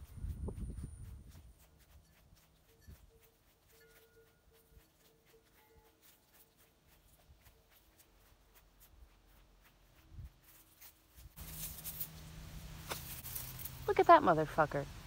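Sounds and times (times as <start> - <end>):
rushing noise with low hum: 0.0 - 1.6
footsteps through dry grass: 0.0 - 14.0.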